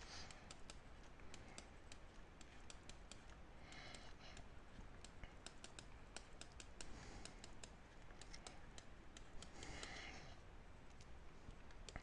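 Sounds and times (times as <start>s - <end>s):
soft breathy noise: 0.0s - 1.9s, 3.3s - 6.1s, 6.7s - 10.6s
stylus tapping on pen tablet: 0.2s - 10.2s.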